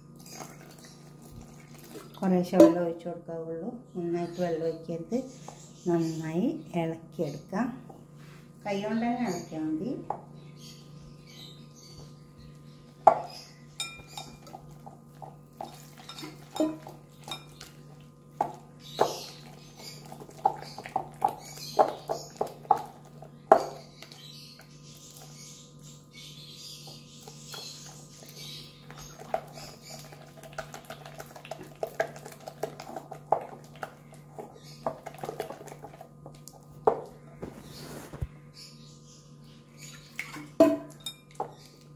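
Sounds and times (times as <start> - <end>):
batter squelching: 0.0 - 2.9, 12.0 - 38.4.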